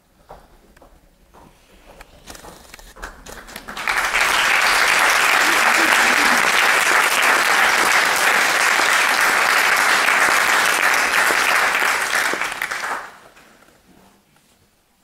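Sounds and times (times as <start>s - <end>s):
audience applauding: 3.0s - 13.6s.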